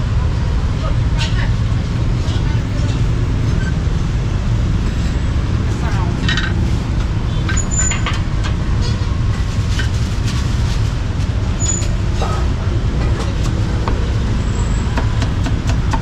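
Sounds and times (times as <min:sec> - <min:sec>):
street traffic rumble: 0:00.0 - 0:16.0
cleaver chopping on wooden block: 0:14.9 - 0:16.0.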